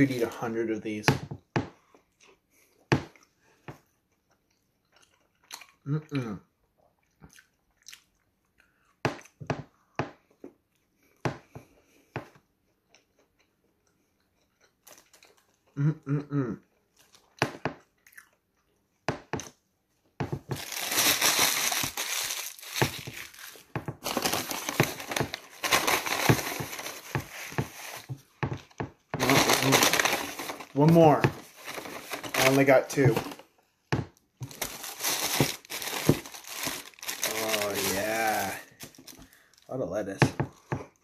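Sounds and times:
person chewing with crunches: 1.8 - 9.4, 12.6 - 15.9, 16.7 - 18.8
paper bag crinkling: 20.5 - 28.1, 29.2 - 33.4, 34.4 - 39.4.

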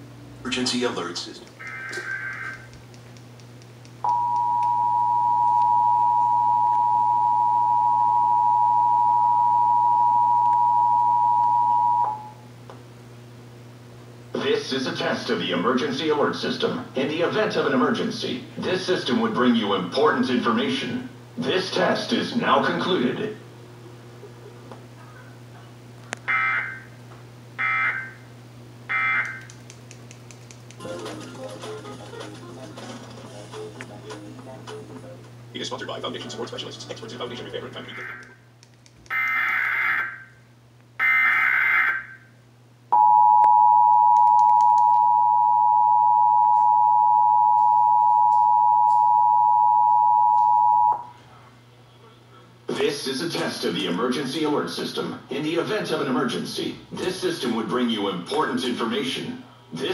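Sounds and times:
steady low hum: 0.0 - 39.1, 42.0 - 59.9
two-tone alarm signal: 4.1 - 12.4, 27.6 - 28.2, 28.9 - 29.4, 41.0 - 42.3, 43.0 - 51.1.

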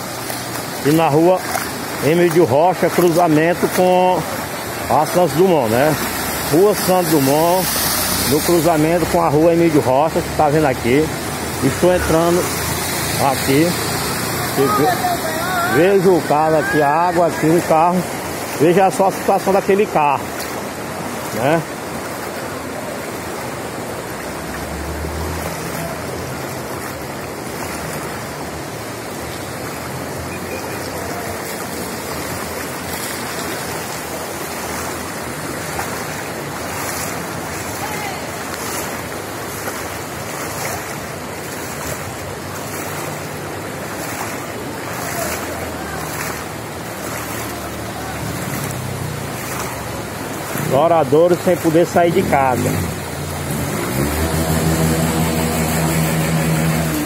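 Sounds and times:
floodwater rushing down street: 0.0 - 57.0
faint voices: 11.6 - 18.1, 44.0 - 49.7.

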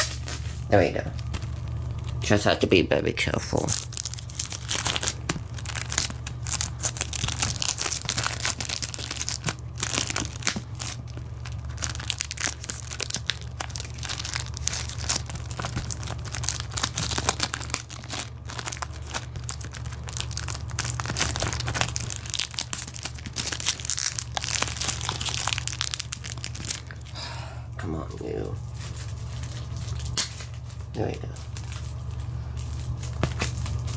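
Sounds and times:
plastic wrapping crinkling: 0.0 - 27.2, 28.1 - 33.9.

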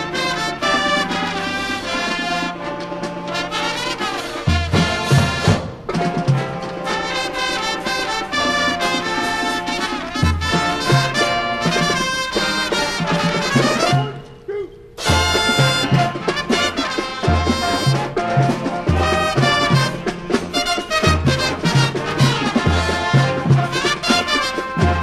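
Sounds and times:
marching band playing: 0.0 - 14.4, 15.0 - 25.0.

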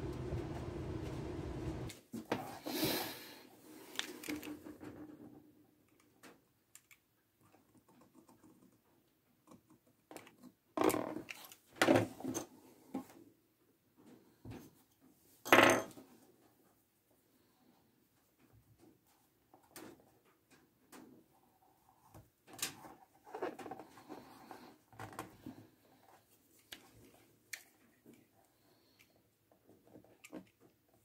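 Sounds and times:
steady low hum: 0.0 - 1.9.

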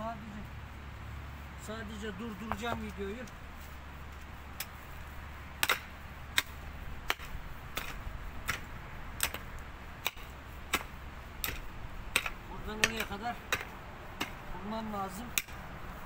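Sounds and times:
pickaxe striking stony soil: 5.6 - 14.5, 15.4 - 15.6.

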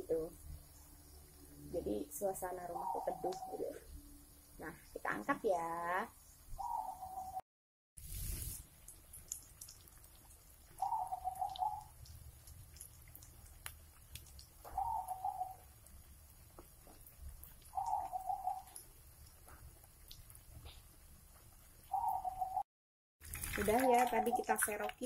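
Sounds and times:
dove cooing: 10.8 - 11.9, 14.7 - 15.6, 17.8 - 18.8.

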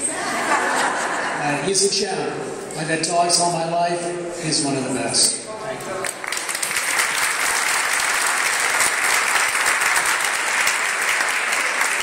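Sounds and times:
audience applauding: 5.8 - 12.0.

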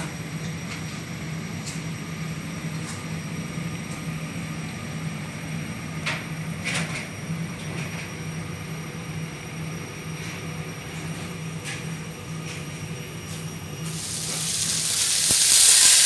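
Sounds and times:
low mechanical hum: 0.0 - 16.0
even hiss: 13.9 - 16.0.

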